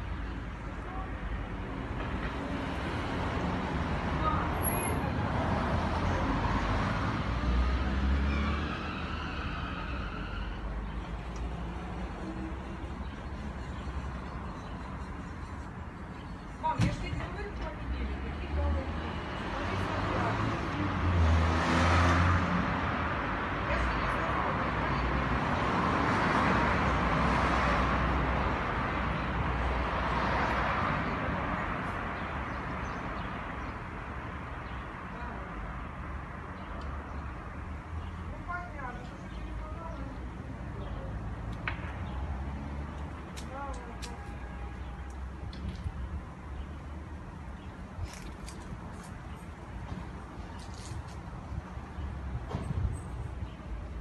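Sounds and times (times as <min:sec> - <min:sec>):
traffic hum: 0:00.0 - 0:54.0
cars driving past: 0:01.7 - 0:15.2, 0:16.9 - 0:38.4, 0:40.2 - 0:43.6
car passing close by: 0:18.9 - 0:23.2.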